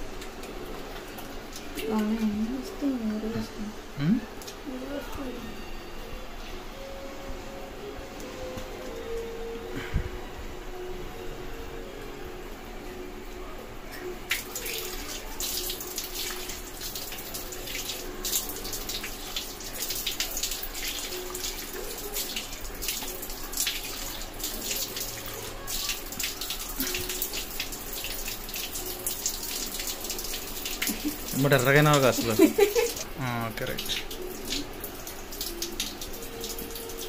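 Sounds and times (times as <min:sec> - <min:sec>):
tap water running into sink: 0:14.3 - 0:37.0.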